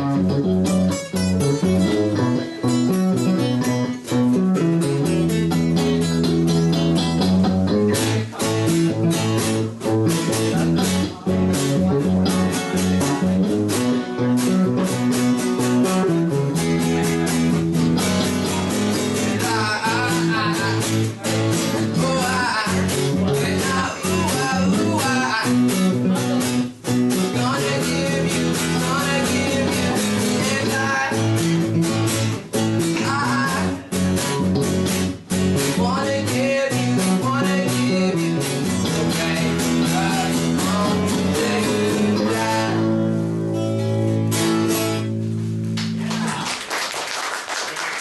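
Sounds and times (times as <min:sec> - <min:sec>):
electric bass: 0:00.0 - 0:46.4
acoustic guitar: 0:00.0 - 0:46.8
person singing: 0:01.4 - 0:34.6, 0:35.5 - 0:43.3
people clapping: 0:45.7 - 0:48.0.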